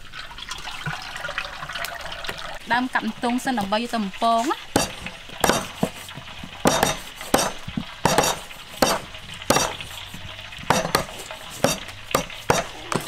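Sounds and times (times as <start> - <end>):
cleavers chopping on wooden boards: 4.8 - 13.0.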